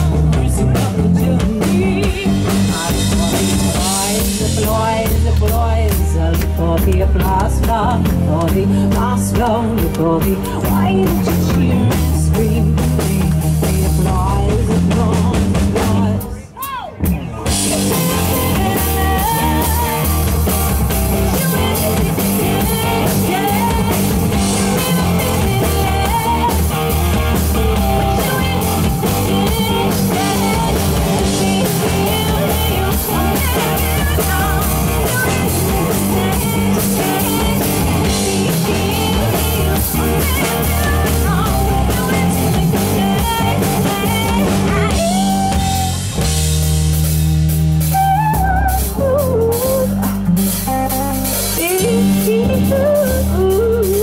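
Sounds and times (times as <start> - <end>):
woman singing into a microphone: 0.0 - 16.8, 17.5 - 46.0, 47.9 - 50.6, 51.4 - 54.0
live rock band playing: 0.0 - 54.0.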